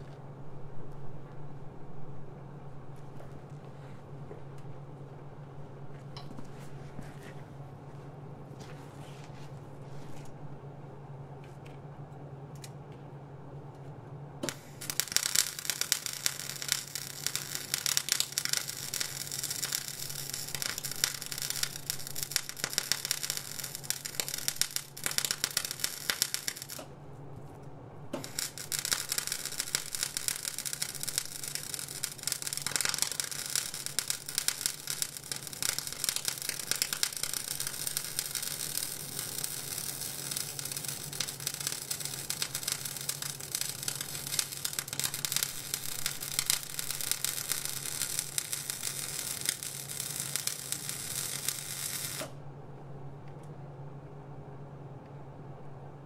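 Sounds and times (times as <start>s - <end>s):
steady low hum: 0.0s - 56.0s
welding arc crackling: 14.4s - 26.9s, 28.1s - 52.4s.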